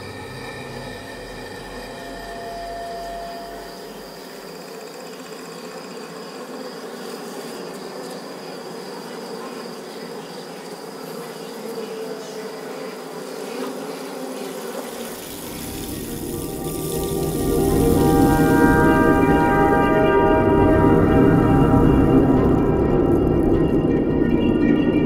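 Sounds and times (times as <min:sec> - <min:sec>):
faint high tone: 0:00.0 - 0:04.3
deep low swell: 0:00.0 - 0:04.4, 0:15.1 - 0:25.0
insect-like buzzing drone: 0:00.0 - 0:25.0.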